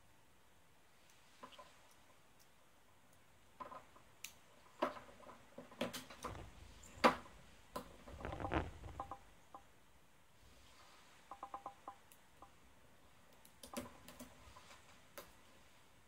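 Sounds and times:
rubbing and handling noise: 0:03.6 - 0:09.3, 0:13.1 - 0:16.0.

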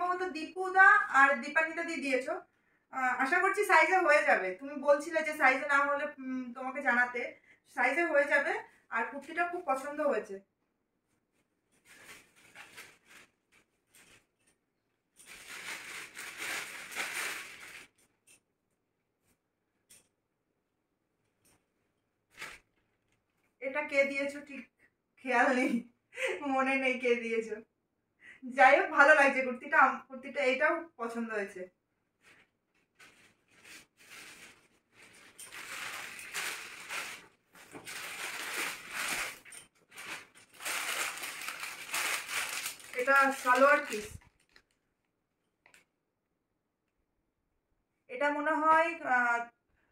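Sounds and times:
cloth rustling: 0:11.0 - 0:18.4, 0:21.2 - 0:23.6, 0:32.0 - 0:44.8
plastic bag crinkling: 0:11.3 - 0:18.3, 0:32.2 - 0:44.9.

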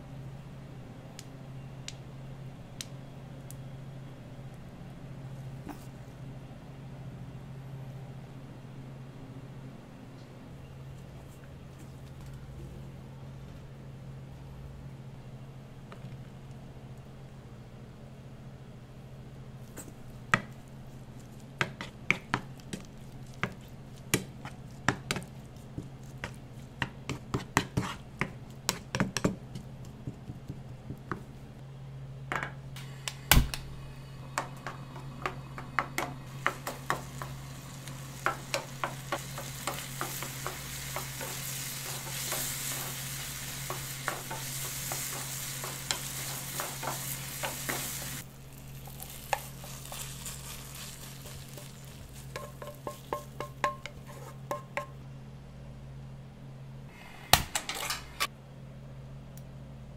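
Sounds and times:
wooden spatula scraping frying pan: 0:27.3 - 0:28.0, 0:49.0 - 0:54.6
chicken sizzling in sauce: 0:36.3 - 0:54.3.

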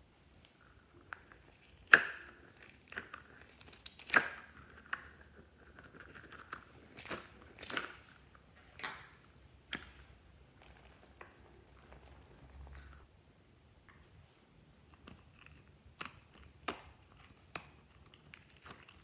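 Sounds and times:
slime popping and crackling: 0:01.1 - 0:12.8.

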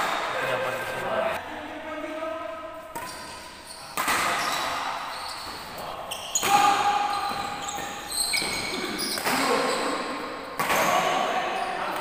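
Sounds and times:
rackets hitting shuttlecock: 0:02.8 - 0:12.0.

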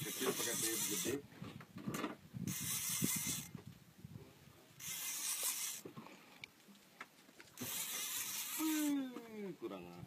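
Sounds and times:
fishing reel buzzing: 0:00.0 - 0:01.2, 0:02.5 - 0:03.5, 0:04.8 - 0:05.8, 0:07.6 - 0:09.1.

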